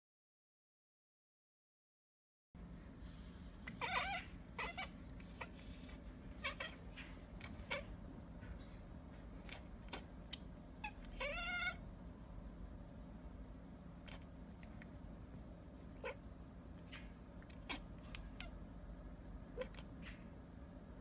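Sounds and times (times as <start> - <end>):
cat meowing: 3.7 - 8.0, 10.8 - 11.8.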